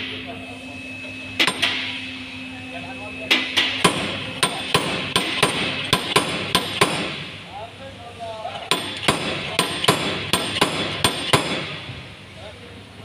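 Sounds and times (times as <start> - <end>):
slide hammer striking steel: 1.3 - 2.0, 3.3 - 7.3, 8.7 - 11.8.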